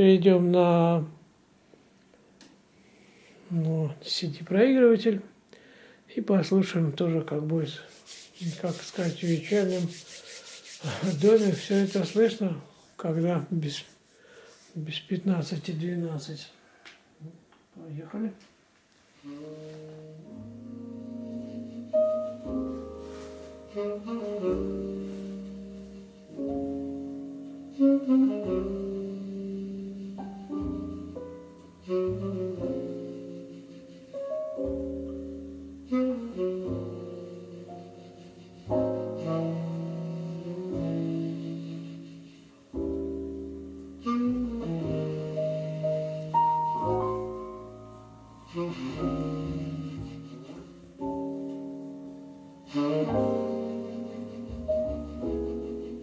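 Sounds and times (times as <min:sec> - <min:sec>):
quiet instrumental music on loudspeakers: 0:19.5 - 0:41.6, 0:42.7 - 0:56.0.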